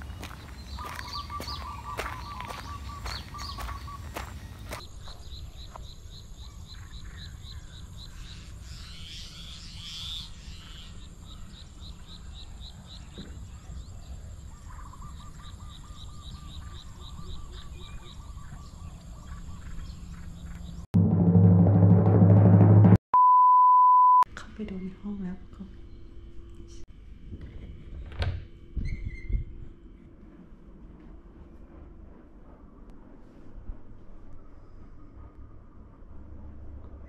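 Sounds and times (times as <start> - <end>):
birds chirping: 0.0 - 20.9
drum-heavy jingle: 21.0 - 23.0.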